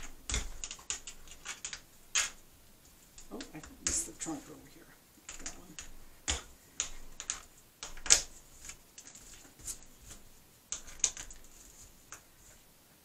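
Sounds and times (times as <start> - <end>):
brush clicking and scraping glass: 0.0 - 4.6, 5.2 - 12.6.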